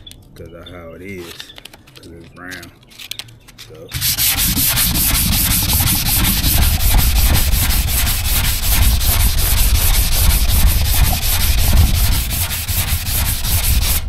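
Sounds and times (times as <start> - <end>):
hand sanding with sandpaper: 3.9 - 14.0.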